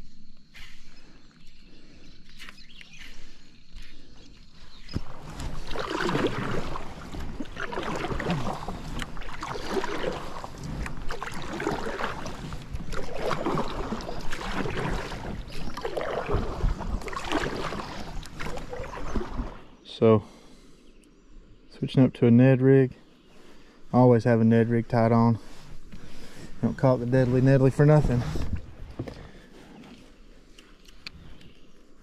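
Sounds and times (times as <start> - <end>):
kayak paddle splashing: 0.6 - 19.8, 25.4 - 30.5.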